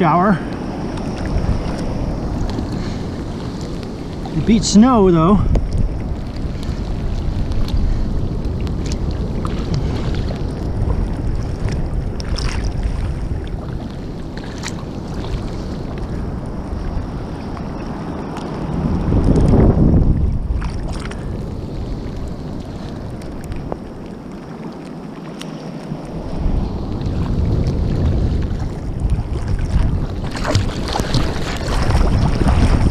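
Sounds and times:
ocean water sloshing and lapping: 0.0s - 32.9s
surge of rushing water: 0.0s - 32.9s
wind on microphone: 0.0s - 32.9s.

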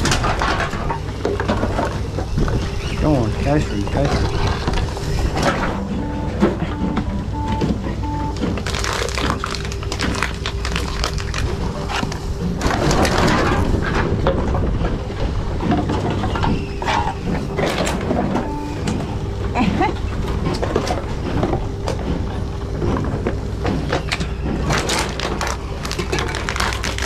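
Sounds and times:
containers clunking and rattling: 0.0s - 5.8s
machine running hum: 0.0s - 27.0s
short beeps: 5.6s - 8.6s, 18.4s - 19.2s.

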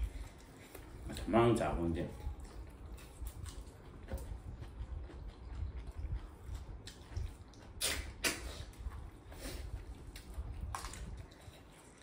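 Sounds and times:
chewing: 0.0s - 1.3s, 1.9s - 12.0s
low steady rumble: 0.0s - 12.0s
wet sucking slurps: 7.6s - 9.9s.

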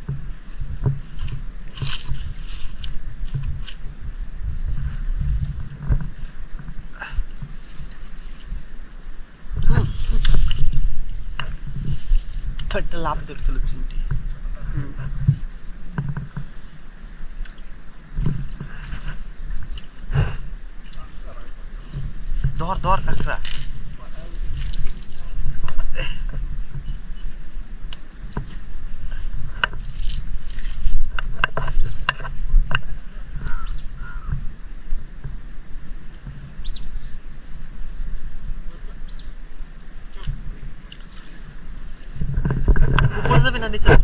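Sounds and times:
water sloshing around wading people: 0.0s - 44.0s
wind rumble on microphone: 0.0s - 44.0s
short bird calls: 33.4s - 34.4s, 36.6s - 37.1s, 38.3s - 39.4s.

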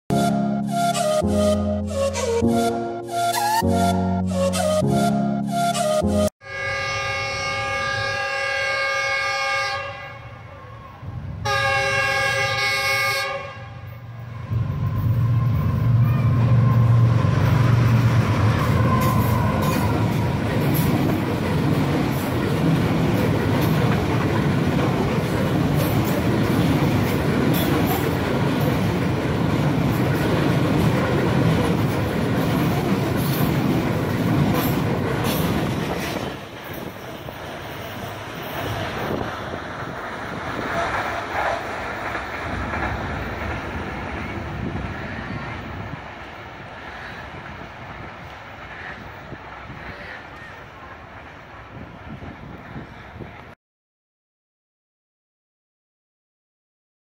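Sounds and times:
locomotive horn blasts: 5.0s - 10.5s, 11.4s - 15.2s
locomotive engine drone: 13.6s - 51.8s
train wheels clacking on rails: 16.8s - 51.2s.

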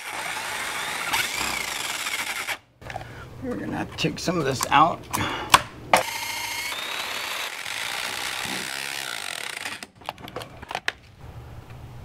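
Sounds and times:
power drill boring into metal: 0.0s - 2.6s, 6.0s - 9.9s.

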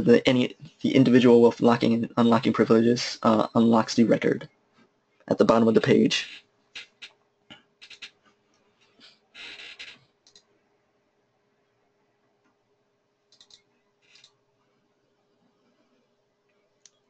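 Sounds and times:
faint steady hum: 0.0s - 17.0s
computer input clicks: 13.3s - 13.6s.

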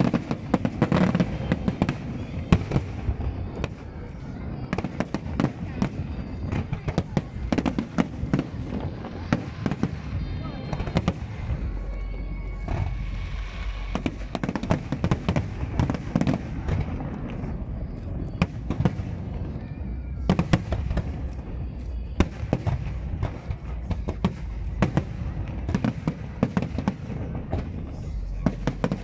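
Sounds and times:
fireworks bangs and crackles: 0.0s - 29.0s
low rumble: 5.8s - 29.0s.

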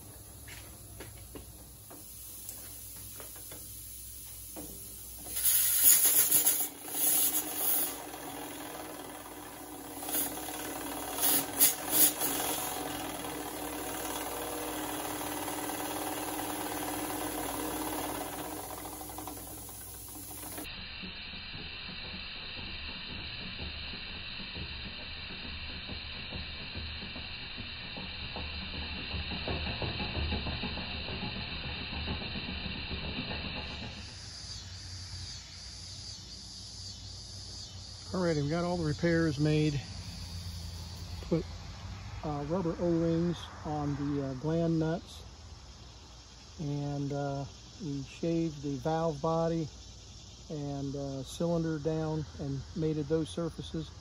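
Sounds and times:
air hissing bursts: 0.0s - 36.5s, 37.2s - 41.5s
small engine running: 0.0s - 54.0s.

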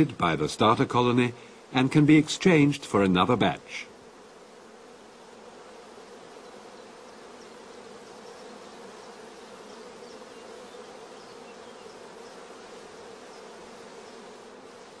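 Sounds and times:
honeybees buzzing: 0.0s - 15.0s.

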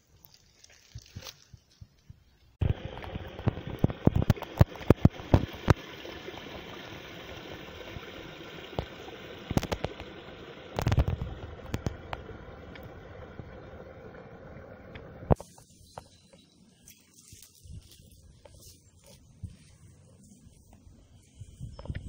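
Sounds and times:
water splashing into a pool: 2.6s - 15.4s.

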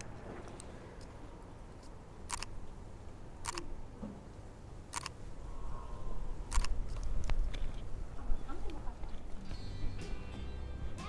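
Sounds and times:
camera shutter clicking: 2.3s - 2.5s, 3.4s - 3.7s, 4.9s - 5.2s, 6.5s - 7.0s.

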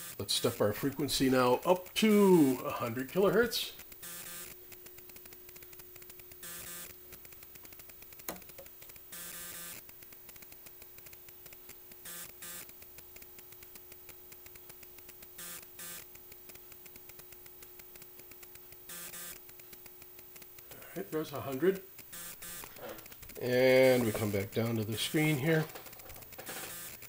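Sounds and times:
faint electrical hum: 0.0s - 27.0s
fast faint ticking: 0.3s - 9.1s
short bursts of hiss: 22.1s - 27.0s.

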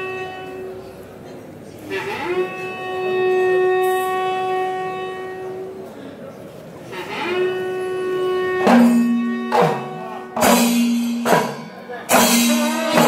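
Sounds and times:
horn blowing long blasts: 0.0s - 1.1s, 1.8s - 5.9s, 6.8s - 13.0s
lower louder horn: 6.9s - 10.8s.

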